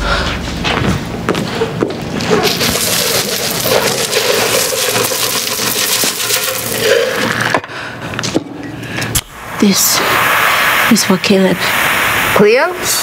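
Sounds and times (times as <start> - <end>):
liquid splashing onto floor: 2.4 - 7.5.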